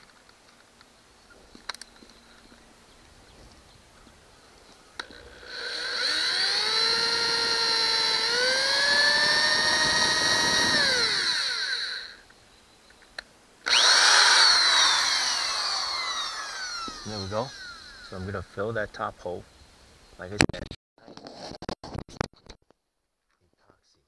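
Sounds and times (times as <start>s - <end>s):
drill click: 5.0s - 12.2s, 13.6s - 18.1s
power drill boring: 5.0s - 12.2s, 13.6s - 18.3s.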